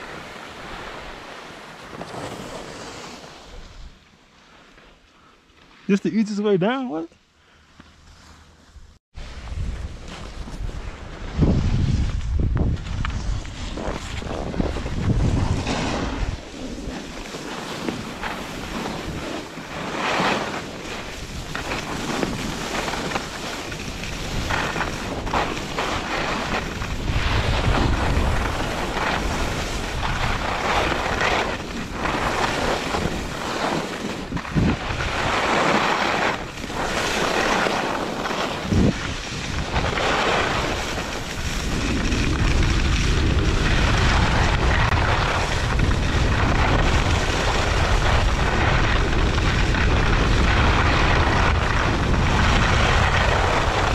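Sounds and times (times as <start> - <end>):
skis scraping over snow: 0.0 - 53.9
wind buffeting microphone: 9.3 - 17.0, 21.0 - 53.9.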